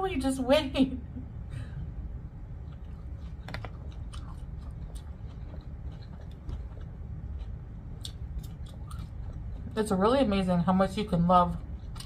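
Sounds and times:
low steady hum: 0.0s - 12.0s
person chewing noodles: 2.5s - 9.8s, 11.6s - 12.0s.

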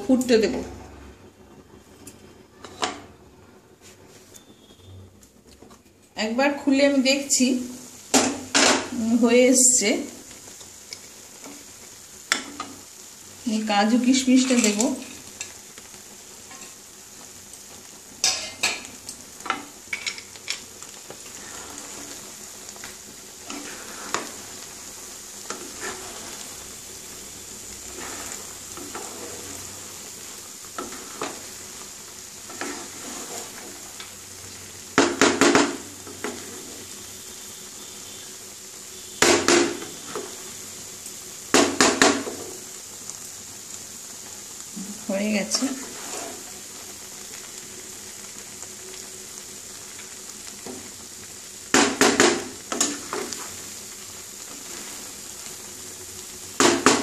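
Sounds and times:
faint steady sizzle: 0.0s - 57.0s
wooden spatula scraping frying pan: 14.2s - 15.6s, 18.2s - 34.2s, 34.9s - 37.0s, 39.2s - 40.5s, 45.4s - 46.8s, 51.8s - 55.6s.

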